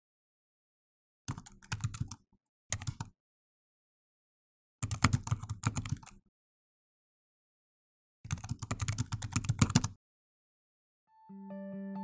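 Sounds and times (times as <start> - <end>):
rapid keyboard typing: 1.3 - 3.1, 4.8 - 6.2, 8.3 - 10.0.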